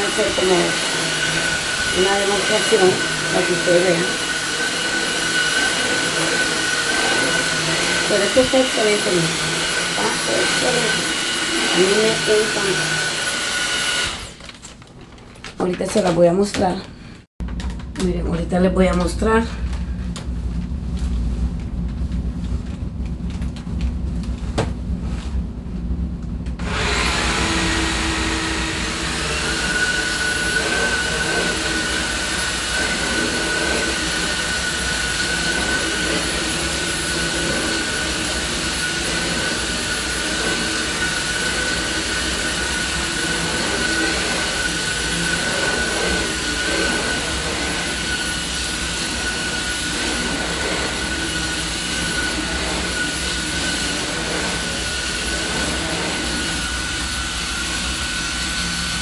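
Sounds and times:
vacuum cleaner whining on carpet: 0.0s - 14.4s, 26.6s - 59.0s.

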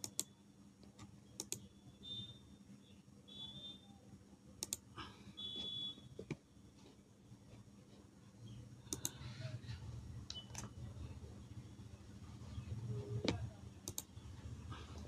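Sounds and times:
computer mouse clicks: 0.0s - 1.7s, 4.6s - 4.9s, 8.9s - 9.2s, 13.2s - 14.2s
low steady background hum: 0.0s - 15.0s.

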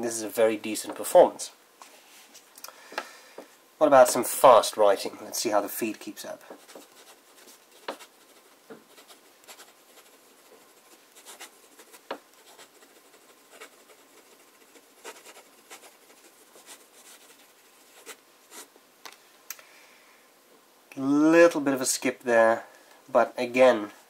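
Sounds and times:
fountain pen scratching on paper: 6.5s - 18.7s.

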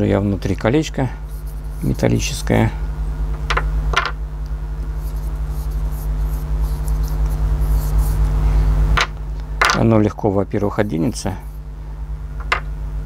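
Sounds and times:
steady low hum: 0.0s - 13.0s
fingers rubbing grease on metal: 1.3s - 2.4s, 5.0s - 8.3s.

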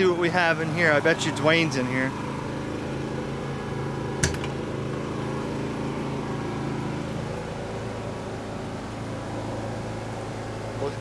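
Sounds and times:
machinery droning hum: 0.0s - 11.0s
sharp click: 4.2s - 4.6s.

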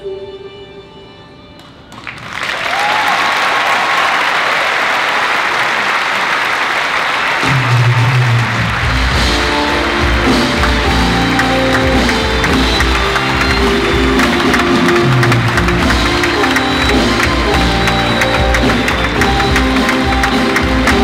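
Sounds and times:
audience applause: 1.9s - 21.0s
music with bass line: 7.5s - 21.0s.

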